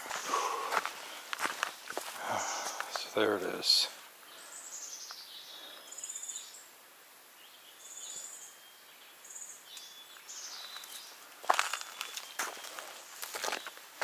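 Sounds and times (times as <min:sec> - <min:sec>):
footstep: 0:00.0 - 0:03.2, 0:10.2 - 0:14.0
songbird singing: 0:00.0 - 0:14.0.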